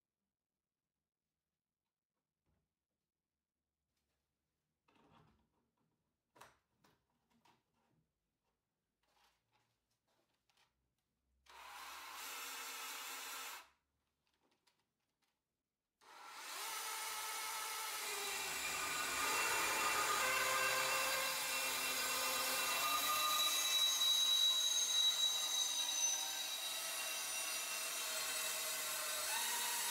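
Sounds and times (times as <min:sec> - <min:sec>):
band saw cutting metal tube: 0:16.2 - 0:29.9.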